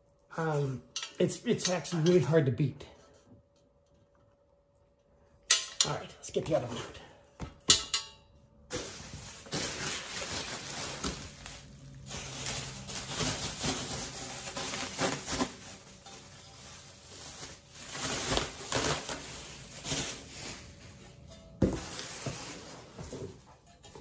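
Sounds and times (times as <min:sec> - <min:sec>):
bubble wrap crinkling: 0:08.7 - 0:23.3.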